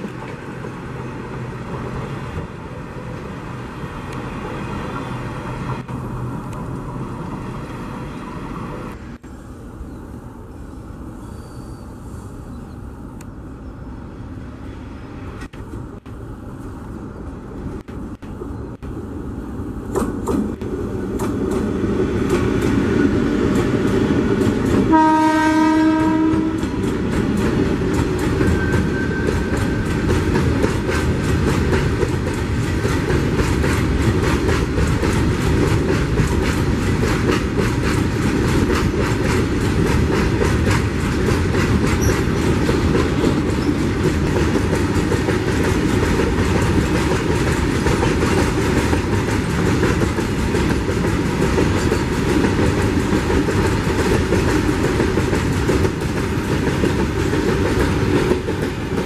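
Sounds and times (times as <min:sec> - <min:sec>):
wheels clacking over rail joints: 0:00.0 - 0:03.3, 0:19.9 - 0:59.0
train horn blast: 0:24.9 - 0:26.8.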